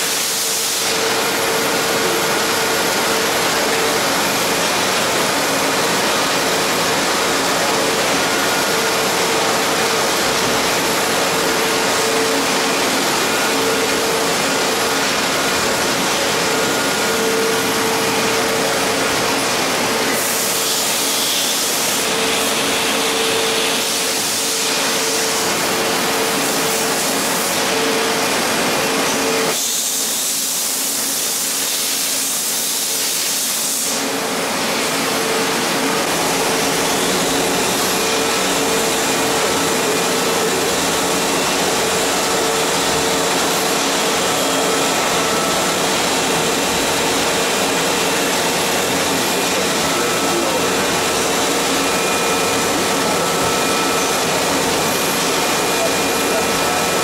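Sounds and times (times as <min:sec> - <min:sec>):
machinery hum and hiss: 0:00.0 - 0:57.0.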